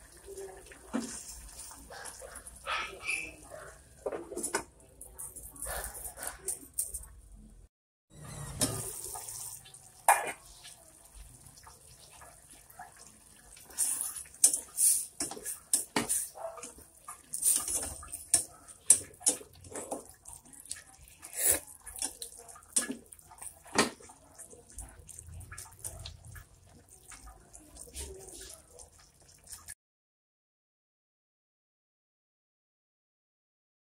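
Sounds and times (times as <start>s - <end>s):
food simmering and sizzling: 0.0s - 5.2s, 8.3s - 29.8s
spatula scraping a pot: 0.9s - 6.6s, 13.6s - 20.2s.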